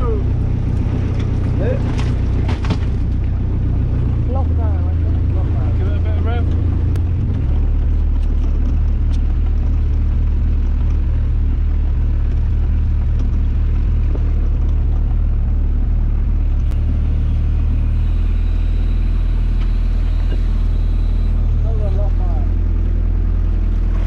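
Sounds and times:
boat engine humming: 0.0s - 24.0s.

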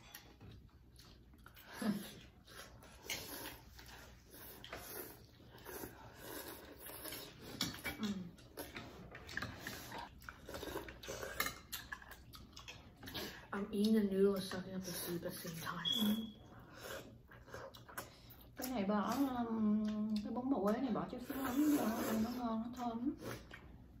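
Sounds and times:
slurping noodles: 2.4s - 7.6s.

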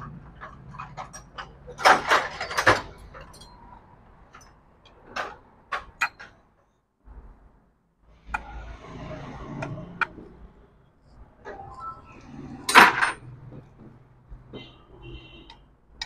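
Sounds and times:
metal clinks of bolt and washer: 0.4s - 3.8s.

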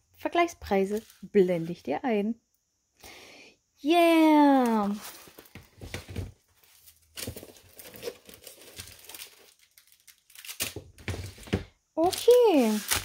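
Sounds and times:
plastic packaging crinkling: 4.7s - 13.0s.

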